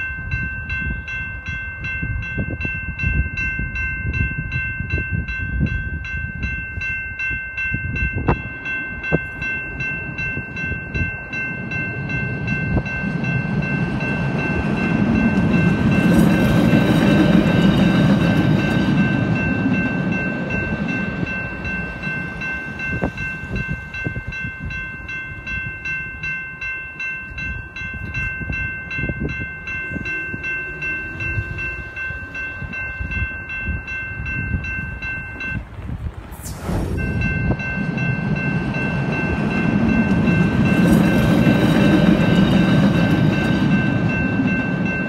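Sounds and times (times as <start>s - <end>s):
crossing bell ringing: 0.0s - 36.0s, 36.7s - 45.0s
electric train rumbling: 0.0s - 45.0s
loud whoosh: 36.3s - 37.7s.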